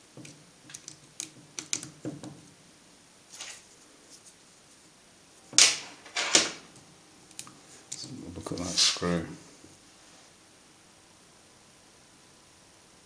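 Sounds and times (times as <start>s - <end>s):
small parts clicking and tapping: 0.2s - 2.4s.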